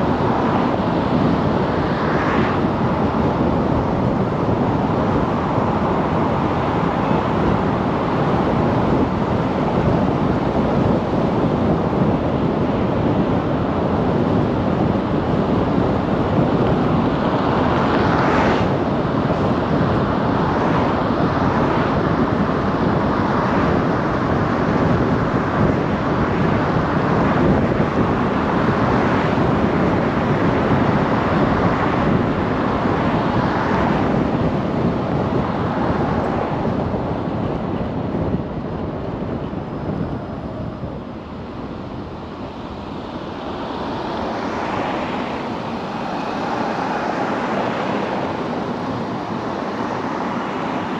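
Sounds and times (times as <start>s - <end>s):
car road and wind noise: 0.0s - 50.9s.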